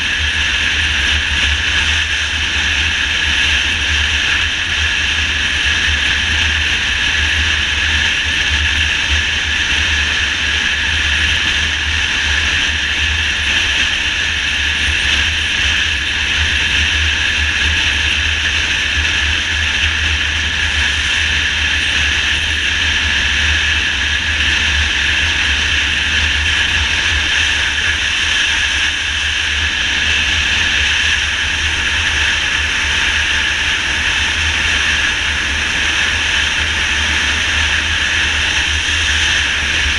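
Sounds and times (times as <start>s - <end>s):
motorcycle engine running: 0.0s - 39.9s
road noise: 0.0s - 39.9s
wind rush on microphone: 0.0s - 39.9s.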